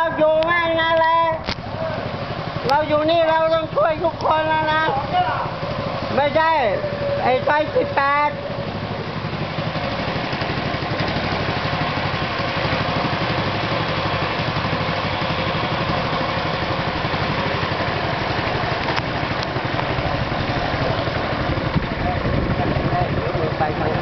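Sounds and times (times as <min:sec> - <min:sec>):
small boat engine chugging: 0:00.0 - 0:24.0.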